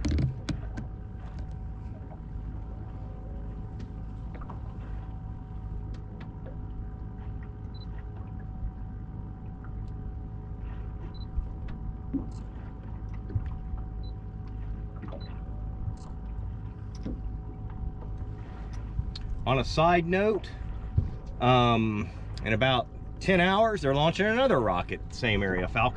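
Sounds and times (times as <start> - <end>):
boat engine idling: 0.0 - 25.9.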